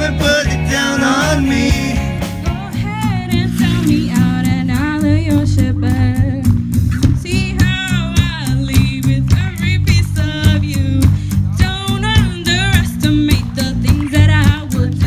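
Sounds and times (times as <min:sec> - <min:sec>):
drum kit: 0:00.0 - 0:15.0
electric guitar: 0:00.0 - 0:15.0
woman singing into microphone: 0:02.5 - 0:15.0.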